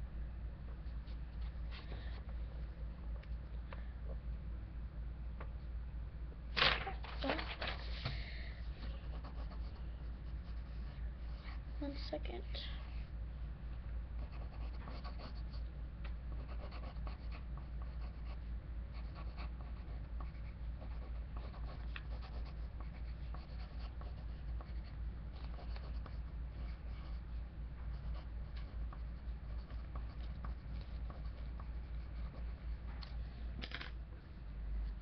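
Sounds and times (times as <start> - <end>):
steady low hum: 0.0 - 35.0
pencil scratching on paper: 8.8 - 11.8, 14.2 - 15.6, 16.3 - 32.8.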